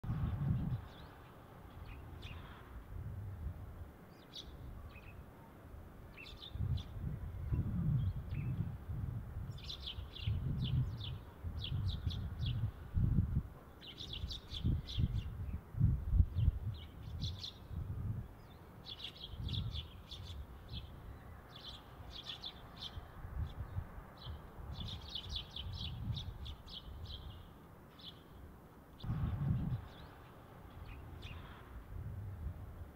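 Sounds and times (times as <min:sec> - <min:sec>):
sparrows chirping: 0:00.0 - 0:02.8, 0:04.0 - 0:08.7, 0:09.4 - 0:31.8
low rumble: 0:29.1 - 0:30.0.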